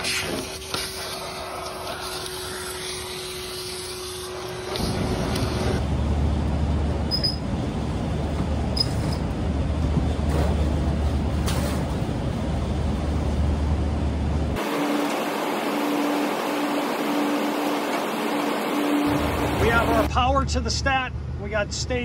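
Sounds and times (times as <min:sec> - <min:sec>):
vacuum cleaner sucking: 0:00.0 - 0:05.8
steady low rumble: 0:04.8 - 0:14.6, 0:19.1 - 0:22.0.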